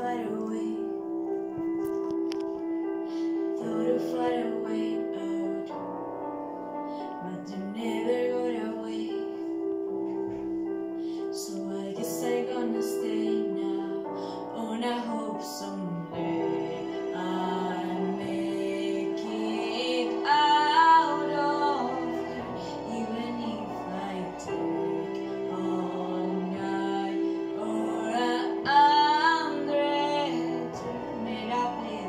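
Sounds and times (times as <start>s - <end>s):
piano chords: 0.0s - 32.0s
girl singing: 3.6s - 5.8s, 11.4s - 32.0s.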